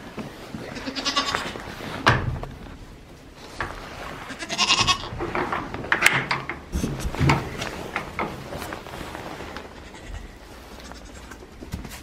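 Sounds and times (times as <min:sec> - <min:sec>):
knocks and rustles: 0:00.0 - 0:12.0
goat kid bleating: 0:00.6 - 0:01.6, 0:04.3 - 0:05.1, 0:09.7 - 0:11.5.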